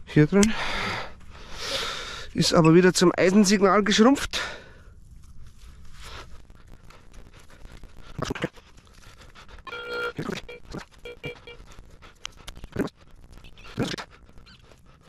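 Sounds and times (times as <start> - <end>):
soil digging and scraping: 5.0 - 15.0
metal detector tone and beeps: 9.7 - 11.6.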